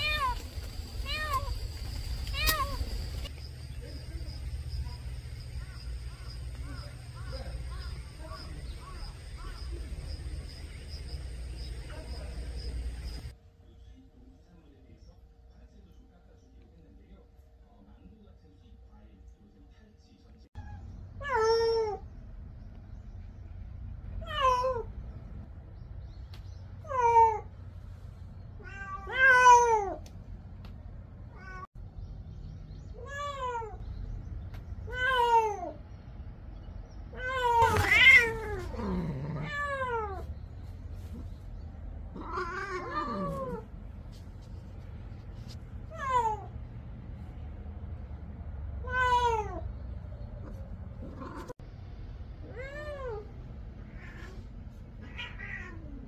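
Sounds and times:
cat meowing: 0.0s - 1.6s, 2.3s - 2.8s, 24.2s - 24.9s, 28.6s - 30.0s, 37.2s - 40.3s, 42.1s - 43.7s, 48.8s - 49.7s, 51.0s - 51.5s, 52.4s - 56.0s.

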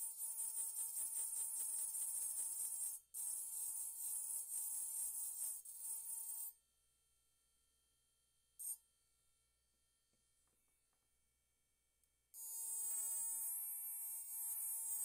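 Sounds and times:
engraving pen grinding glass: 12.4s - 15.0s.

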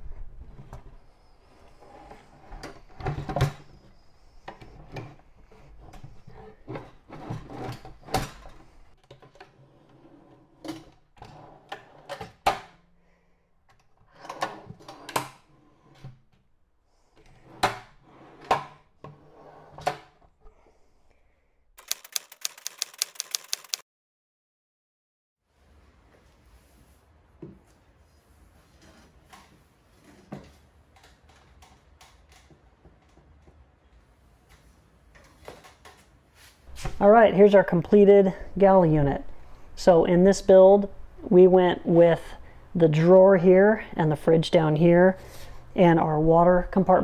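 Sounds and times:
fast run of sharp clicks: 21.8s - 23.8s
clicks and knocks of hand work: 30.2s - 36.2s.

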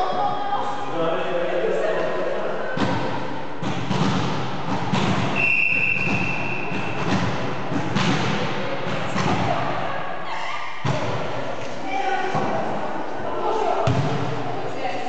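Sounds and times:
thuds and knocks echoing: 2.8s - 9.8s, 10.8s - 11.5s, 13.9s - 14.5s
referee's whistle: 5.4s - 6.8s.

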